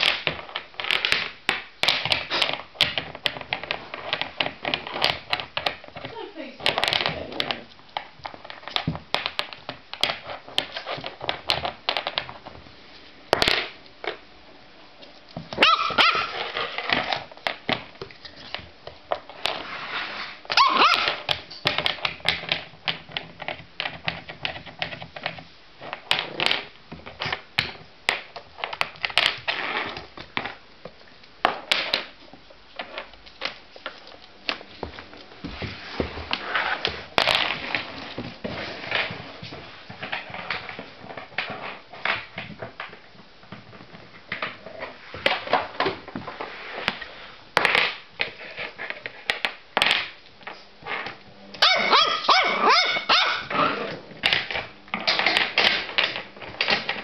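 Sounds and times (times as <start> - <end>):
puppy claws clicking on wooden floor: 0.0 - 12.6, 20.6 - 35.3
puppy barking: 15.6 - 16.4, 20.6 - 21.1, 51.6 - 53.8.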